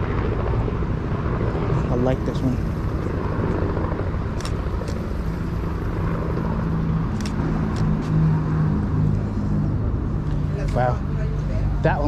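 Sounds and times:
street traffic rumble: 0.0s - 12.0s
vehicle engine hum: 0.0s - 12.0s
sharp clicks: 4.4s - 5.0s, 7.1s - 8.2s.

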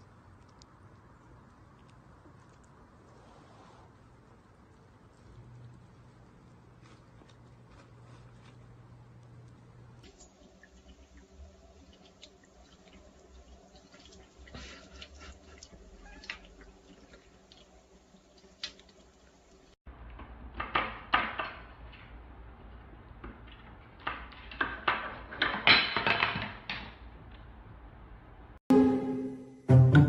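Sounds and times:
water trickling from a tap: 10.0s - 19.8s.

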